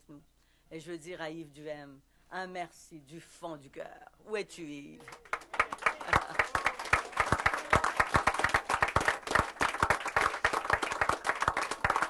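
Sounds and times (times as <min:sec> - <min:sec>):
close hand claps: 0:05.0 - 0:12.0
crowd clapping: 0:05.0 - 0:12.0.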